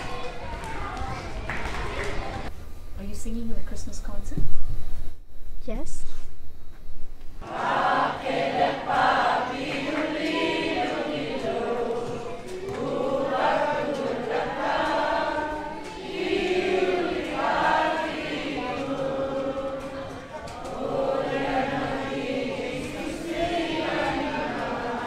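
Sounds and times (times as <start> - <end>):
mixed choir singing: 7.4 - 25.0.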